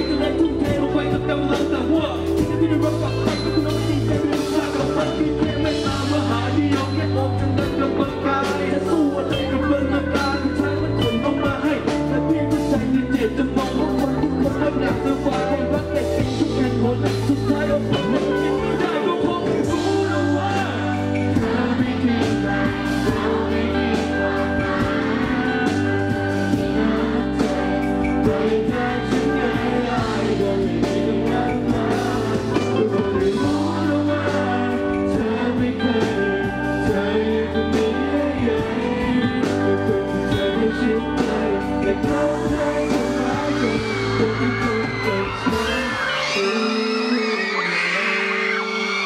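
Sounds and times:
person rapping: 0.0 - 20.8
backing track with heavy bass: 0.0 - 47.8.

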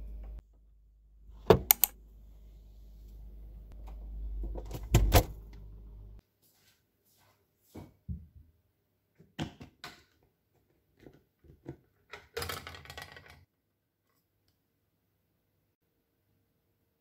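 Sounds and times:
rattle of plastic parts: 11.0 - 13.5.

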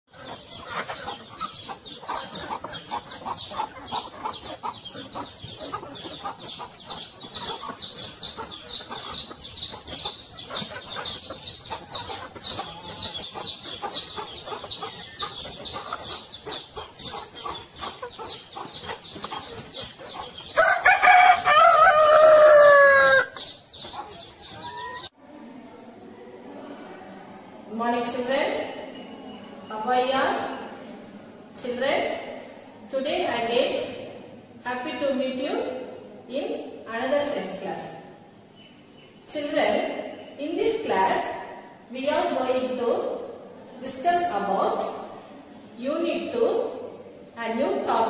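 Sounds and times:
chickens calling: 0.1 - 25.2
rooster crowing: 20.6 - 23.4.

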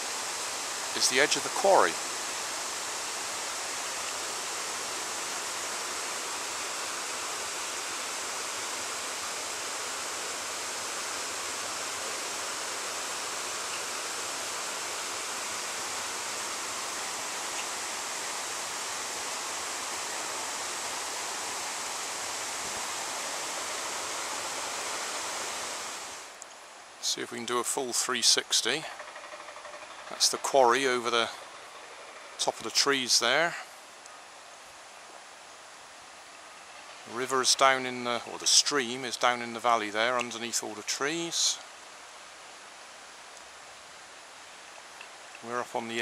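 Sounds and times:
stream rushing: 0.0 - 27.1, 29.1 - 46.0.

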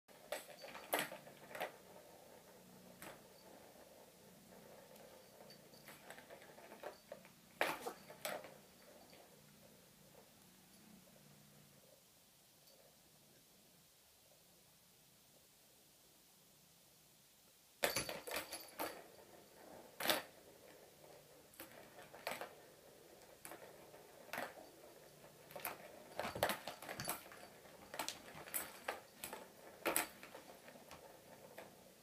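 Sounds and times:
plastic ball rattling around track: 0.2 - 9.3, 17.8 - 32.0.

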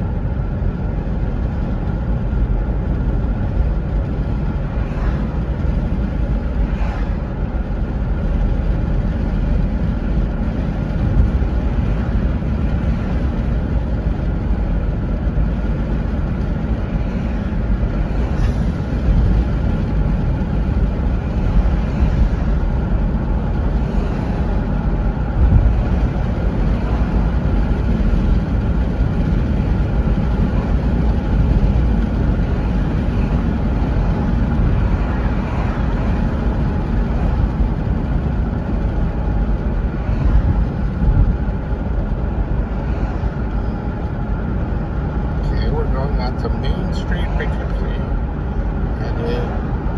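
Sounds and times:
car driving heard from cabin: 0.0 - 49.9.

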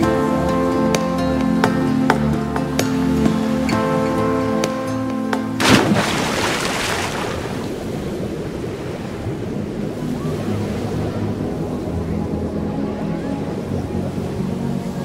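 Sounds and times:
rush of bubbles and water: 5.6 - 9.8.

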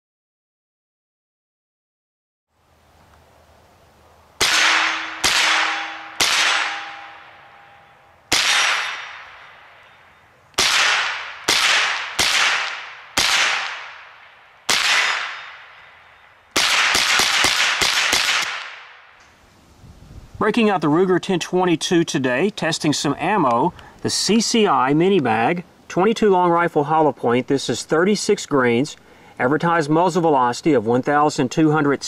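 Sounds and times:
fast string of rifle shots: 4.4 - 7.3, 8.3 - 9.5, 10.6 - 15.7, 16.6 - 19.0
rifle shots with echo: 4.4 - 10.0, 10.6 - 15.9, 16.5 - 19.2
faint ringing tone: 6.8 - 8.3, 8.9 - 10.4.

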